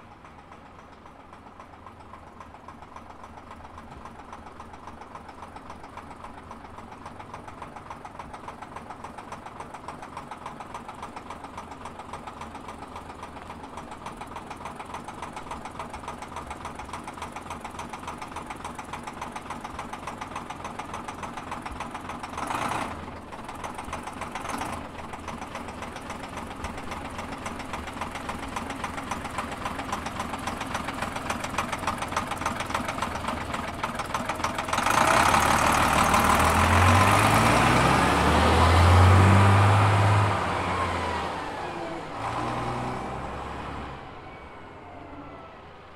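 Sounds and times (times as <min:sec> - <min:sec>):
diesel bus engine idling: 0:00.0 - 0:45.9
bus engine revving: 0:31.5 - 0:45.9.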